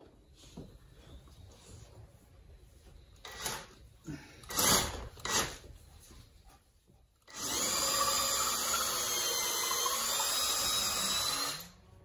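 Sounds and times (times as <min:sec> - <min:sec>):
cordless drill whining under load: 0:07.3 - 0:11.8.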